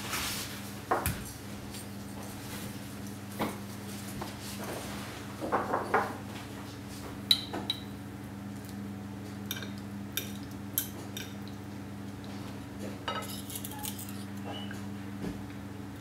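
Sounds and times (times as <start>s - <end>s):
cutlery clinking on a plate: 13.1s - 14.6s.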